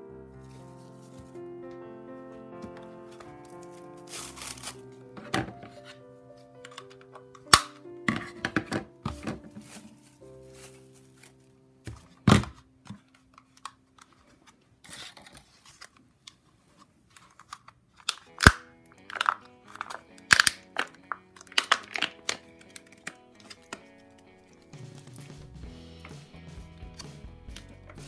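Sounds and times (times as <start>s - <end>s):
plastic cup crackling: 2.6s - 5.9s, 6.6s - 16.4s, 17.1s - 25.4s.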